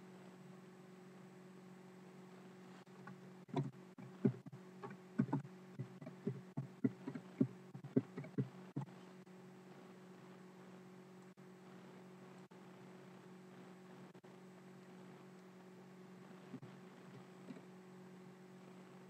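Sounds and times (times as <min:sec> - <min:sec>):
steady low hum: 0:00.0 - 0:19.0
soft irregular knocks and thumps: 0:02.9 - 0:09.1, 0:16.4 - 0:17.7.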